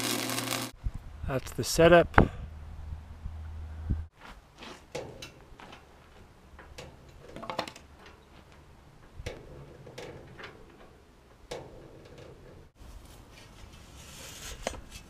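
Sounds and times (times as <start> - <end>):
engine hoist clicks and knocks: 9.0 - 12.7.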